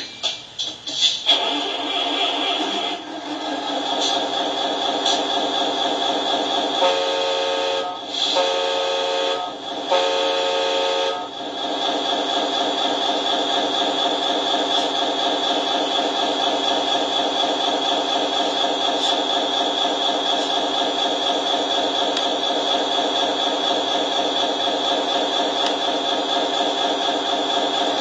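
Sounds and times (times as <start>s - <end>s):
air horn blasts: 6.8s - 11.3s.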